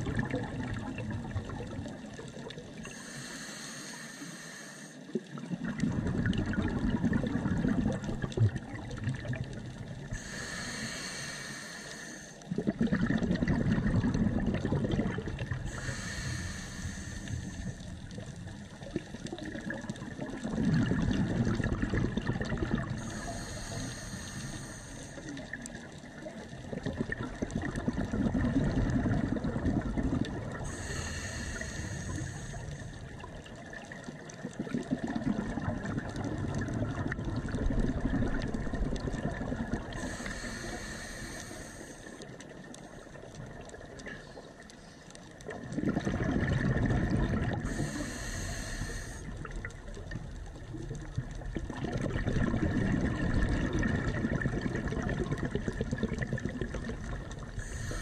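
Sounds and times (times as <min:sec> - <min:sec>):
gurgling exhaled bubbles: 0:00.0 - 0:03.3, 0:05.1 - 0:11.2, 0:12.4 - 0:58.0
regulator hissing inhalation: 0:02.8 - 0:05.1, 0:10.1 - 0:12.5, 0:15.6 - 0:17.9, 0:23.0 - 0:25.5, 0:30.6 - 0:33.2, 0:39.9 - 0:42.3, 0:47.6 - 0:49.4, 0:57.6 - 0:58.0.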